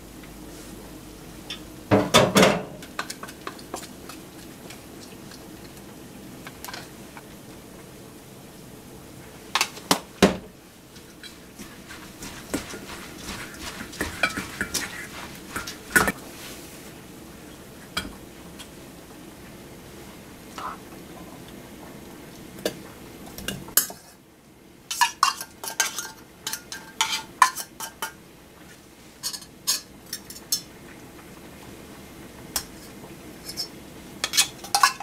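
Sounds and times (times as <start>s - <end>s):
metal kitchenware clattering: 2.0s - 3.6s, 24.9s - 28.2s, 29.2s - 30.7s, 32.6s - 35.0s.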